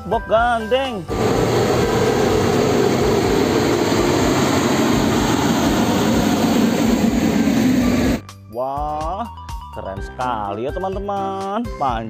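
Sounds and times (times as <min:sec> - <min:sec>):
heavy truck driving past: 0:01.1 - 0:08.2.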